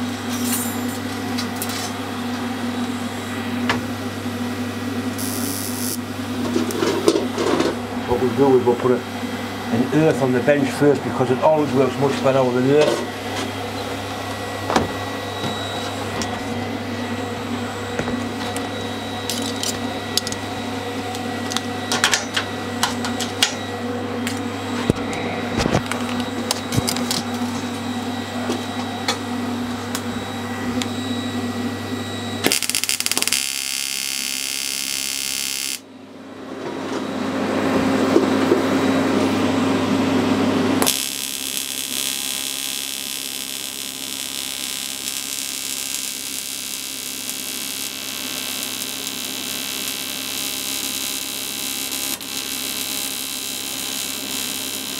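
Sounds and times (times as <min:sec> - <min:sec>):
welding set humming: 0:00.0 - 0:54.9
welding arc hissing buzz: 0:04.9 - 0:08.5, 0:13.1 - 0:22.1, 0:32.3 - 0:35.9, 0:40.8 - 0:54.9.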